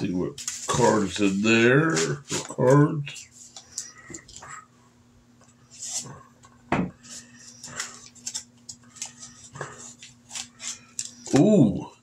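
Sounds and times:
paper and plastic crinkling: 0.0 - 4.4, 7.0 - 11.6.

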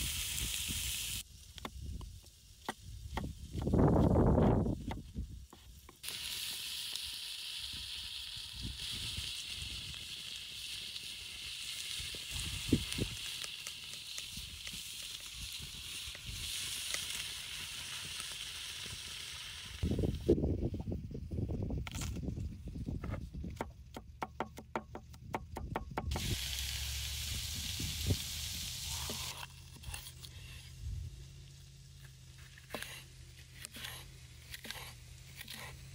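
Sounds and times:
meat sizzling on a steel griddle: 0.0 - 1.2, 6.0 - 19.8, 26.1 - 29.3
steady hiss: 0.0 - 2.7, 26.0 - 29.5.

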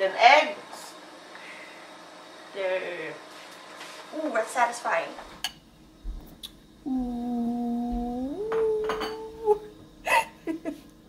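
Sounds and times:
person humming: 6.8 - 10.4
utensil clinking against bowl: 8.5 - 9.3.

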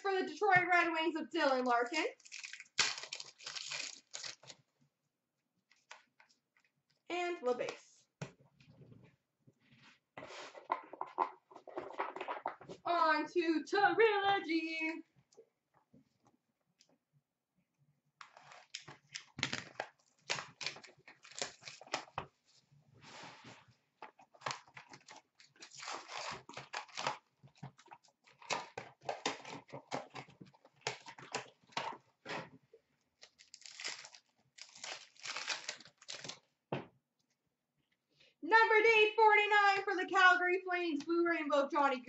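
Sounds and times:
card packs ripping and crinkling: 2.2 - 4.6, 18.4 - 22.2, 24.5 - 27.2, 33.2 - 36.4.

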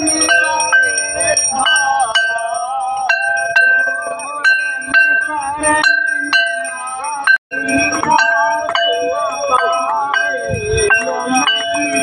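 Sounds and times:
hymn being sung: 0.0 - 12.0
ringing bell strikes: 0.0 - 12.0.

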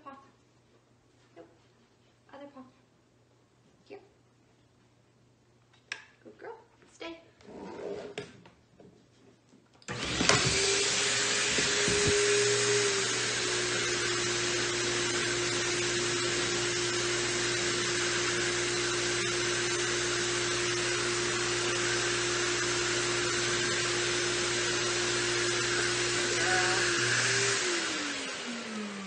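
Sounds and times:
grooming machine whooshing hum: 9.9 - 29.0.

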